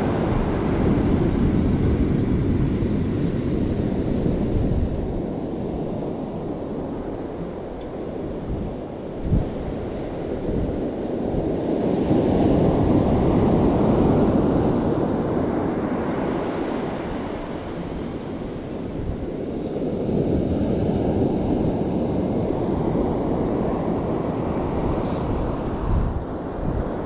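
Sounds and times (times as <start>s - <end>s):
sea surf washing in: 0.0s - 7.4s, 9.2s - 27.0s
wind on microphone: 0.0s - 27.0s.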